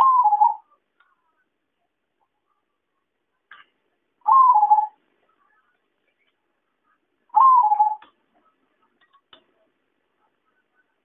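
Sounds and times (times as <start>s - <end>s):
zebra dove cooing: 0.0s - 0.7s, 4.3s - 5.0s, 7.4s - 8.0s.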